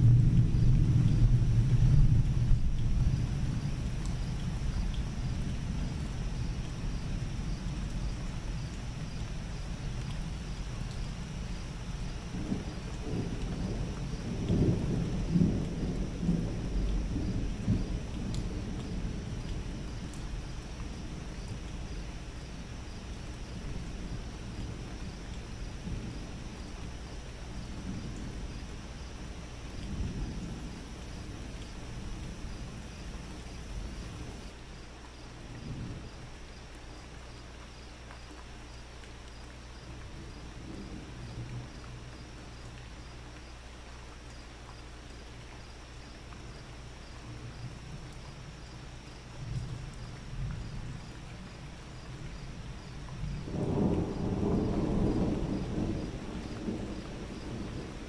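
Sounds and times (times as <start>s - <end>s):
thunder rumbling: 0.0s - 34.5s, 52.3s - 58.0s.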